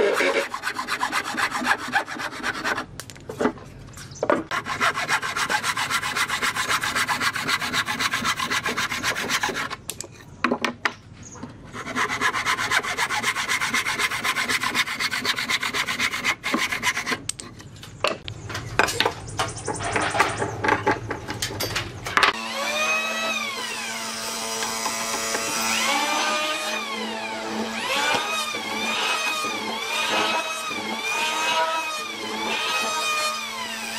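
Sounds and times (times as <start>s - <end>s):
hand saw cutting wood: 0.0s - 3.6s, 4.5s - 9.8s, 11.7s - 17.4s, 22.3s - 33.9s
mortising machine motor whine: 22.3s - 33.9s.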